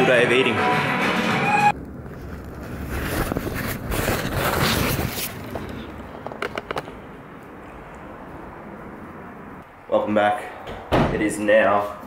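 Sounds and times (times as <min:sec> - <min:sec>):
fabric brushing over microphone: 0:02.2 - 0:05.6.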